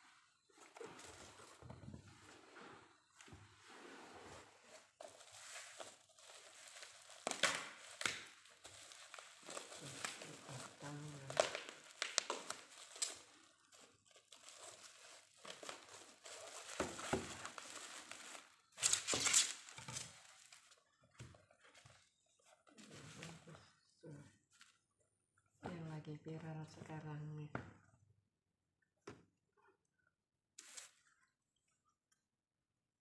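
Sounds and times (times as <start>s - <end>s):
plastic wrapping crinkling and tearing: 5.1s - 21.0s.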